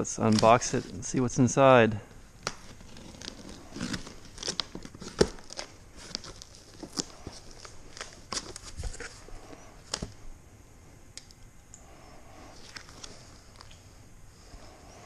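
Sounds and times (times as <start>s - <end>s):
knife slitting packing tape: 2.4s - 7.3s
cardboard flaps crackling: 2.4s - 10.2s.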